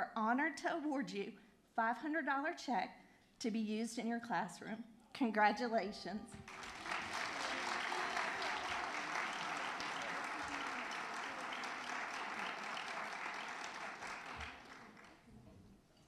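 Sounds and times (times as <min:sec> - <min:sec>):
audience applauding: 0:06.4 - 0:15.3.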